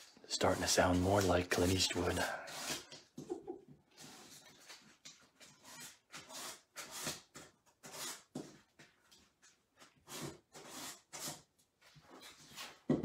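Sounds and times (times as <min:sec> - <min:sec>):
faint rubbing on paper: 0:00.0 - 0:02.9.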